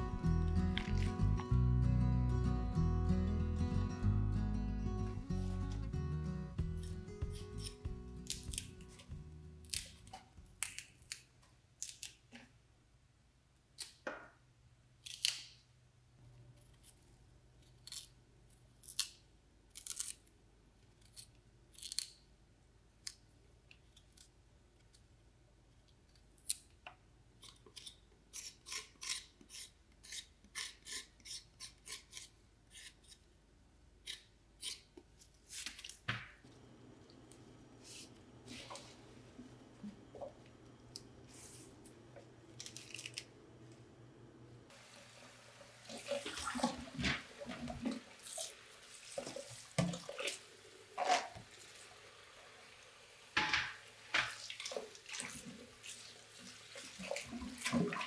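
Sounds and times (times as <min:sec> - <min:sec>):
knife cutting and scraping strokes: 0:06.6 - 0:10.1, 0:27.4 - 0:33.3, 0:34.1 - 0:35.9.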